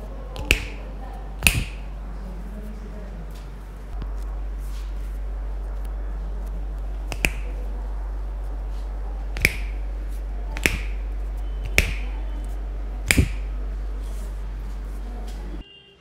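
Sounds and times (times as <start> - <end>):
steady low hum: 0.0 - 15.6
knuckles cracking: 7.1 - 7.5.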